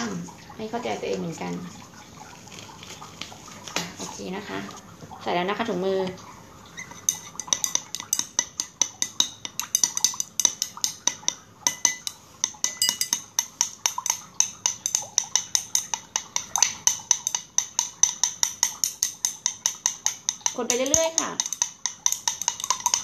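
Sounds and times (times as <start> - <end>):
utensil clinking against glass: 6.8 - 23.0.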